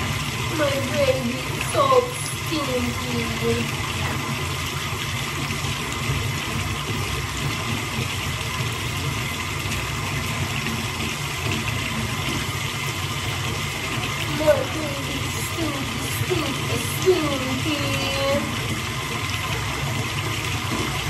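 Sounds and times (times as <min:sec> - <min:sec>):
water running into bathtub: 0:00.0 - 0:21.0.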